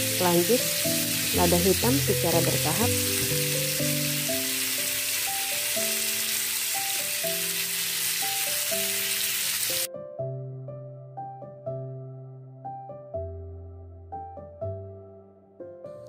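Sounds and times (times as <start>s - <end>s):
meat sizzling in a pan: 0.0s - 9.9s
background music: 0.0s - 16.0s.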